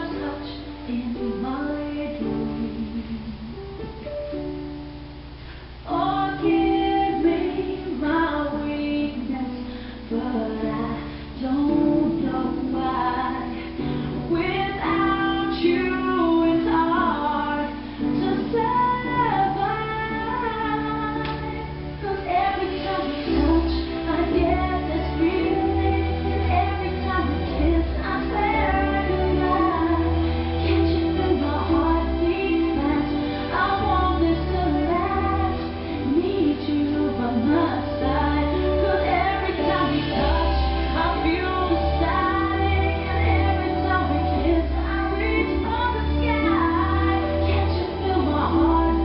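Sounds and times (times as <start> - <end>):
pop song with female vocal: 0.0 - 3.7, 5.9 - 49.0.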